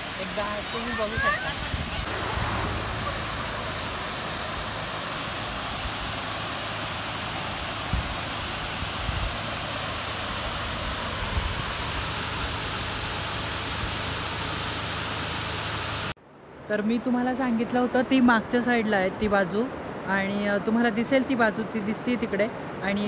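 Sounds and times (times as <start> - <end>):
water rushing over weir: 0.0 - 16.2.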